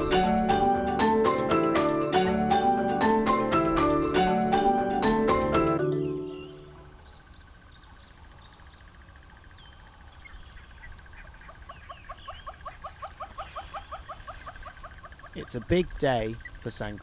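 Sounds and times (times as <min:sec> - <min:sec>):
short high bird chirps: 0:06.2 - 0:07.2
fast steady train of chirps: 0:06.3 - 0:17.0.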